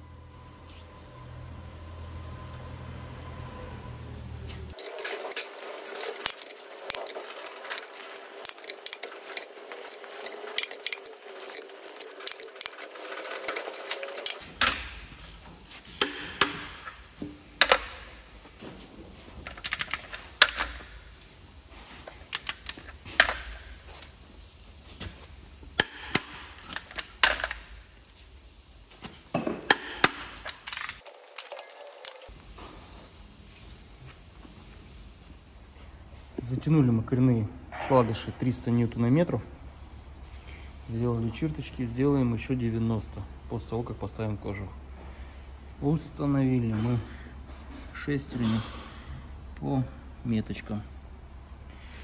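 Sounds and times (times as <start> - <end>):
ratcheting wrench clicks: 4.8 - 14.9.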